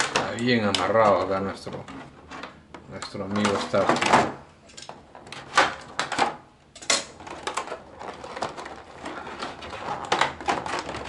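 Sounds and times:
plastic packaging crackling: 0:07.0 - 0:11.0.

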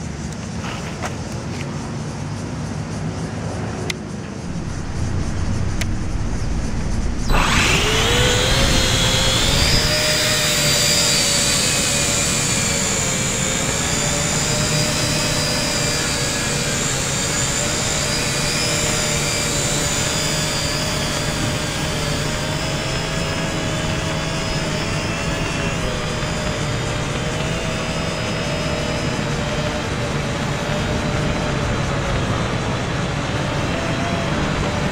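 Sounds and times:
quadcopter motors whining: 0:04.4 - 0:34.9.

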